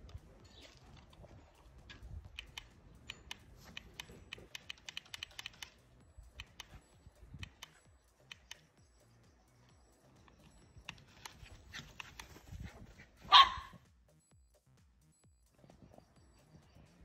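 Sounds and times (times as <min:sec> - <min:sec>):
faint sharp clicks: 0:02.0 - 0:08.8.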